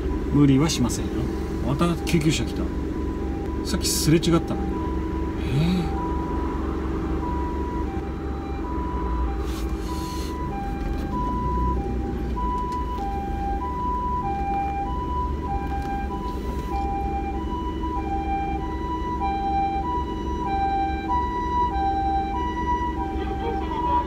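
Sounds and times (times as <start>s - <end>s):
car engine and road rumble: 0.0s - 24.0s
two-tone ambulance siren: 0.0s - 24.0s.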